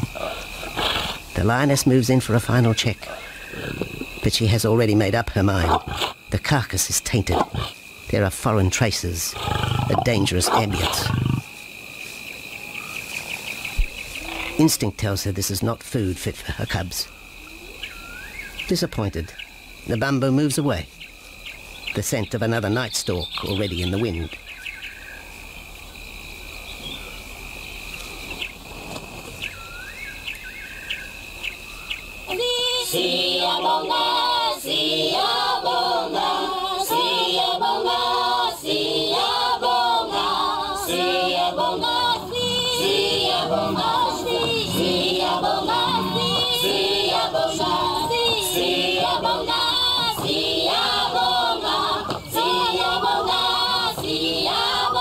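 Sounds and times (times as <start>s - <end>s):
choir singing: 32.3s - 55.0s
steady high drone: 40.0s - 55.0s.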